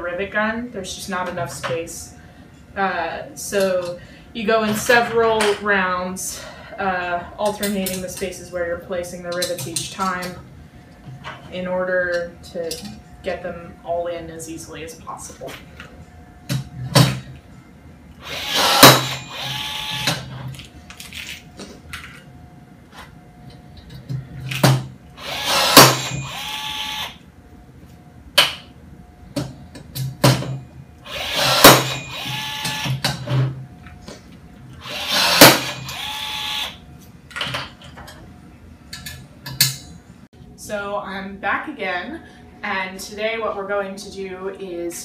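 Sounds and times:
rivet gun motor whir: 0:18.2 - 0:20.2, 0:25.2 - 0:27.2, 0:31.1 - 0:33.0, 0:34.8 - 0:36.8.

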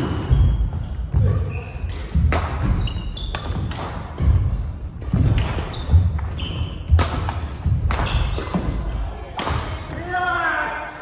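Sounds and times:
shoes squeaking: 0:00.0 - 0:09.1
racket striking shuttlecock: 0:01.9 - 0:04.4, 0:06.9 - 0:08.6.

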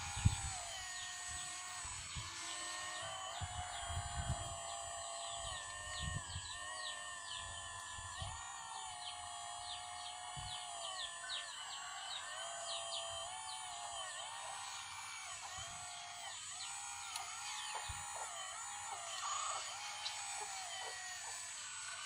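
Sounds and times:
hydraulic pump whining: 0:00.0 - 0:22.0.

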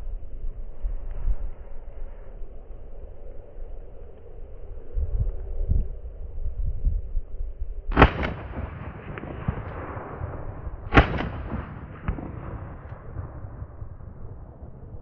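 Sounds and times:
rifle shots with echo: 0:07.9 - 0:15.0.

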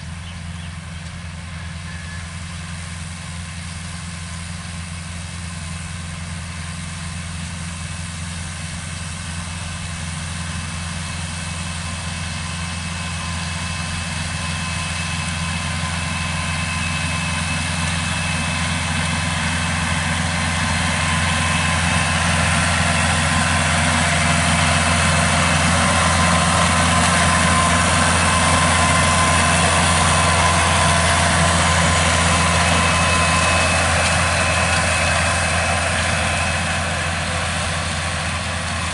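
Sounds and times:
diesel tractor engine: 0:00.0 - 0:38.9.

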